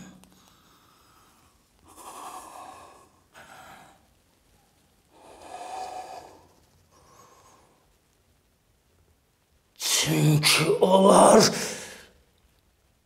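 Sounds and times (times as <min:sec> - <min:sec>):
man breathing heavily: 0:00.3 - 0:04.1, 0:05.1 - 0:07.9.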